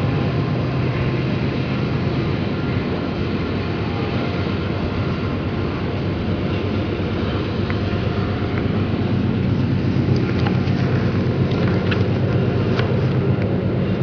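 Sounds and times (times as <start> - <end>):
distant train rumble: 0.0 - 14.0.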